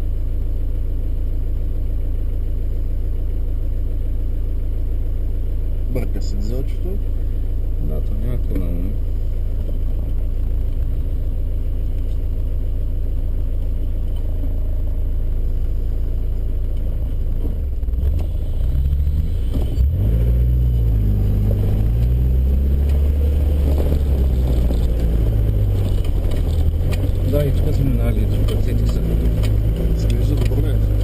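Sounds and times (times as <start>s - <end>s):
diesel engine revving: 10.5s - 31.0s.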